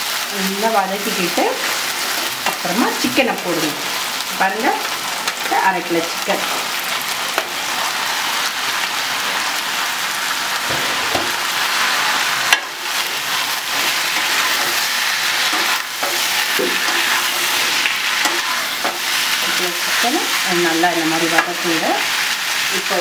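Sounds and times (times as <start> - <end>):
chicken sizzling in oil: 0.0 - 23.0
spatula stirring in pan: 10.6 - 22.7.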